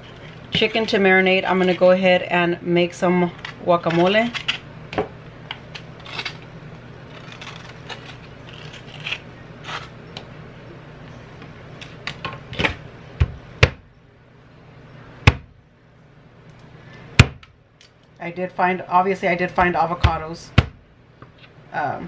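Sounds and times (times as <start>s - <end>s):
scraping avocado flesh: 5.8s - 10.2s.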